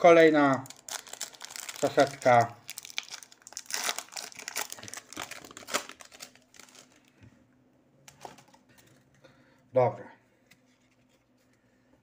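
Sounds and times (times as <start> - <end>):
plastic packet crinkling: 0.2 - 7.1.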